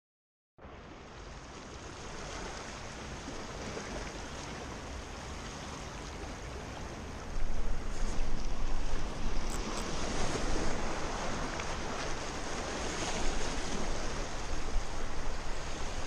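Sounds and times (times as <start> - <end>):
small waves washing on beach: 0.6 - 16.0
wind buffeting microphone: 6.2 - 16.0.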